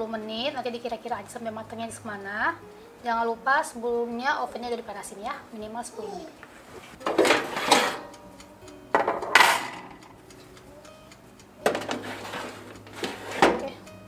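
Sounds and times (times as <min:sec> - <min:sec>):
metal tray clattering on oven rack: 0:07.1 - 0:08.1, 0:09.0 - 0:10.0, 0:11.7 - 0:13.8.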